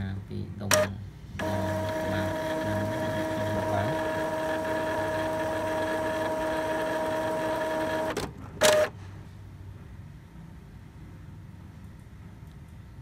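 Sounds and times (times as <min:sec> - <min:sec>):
printer motor whine: 0:00.7 - 0:08.9.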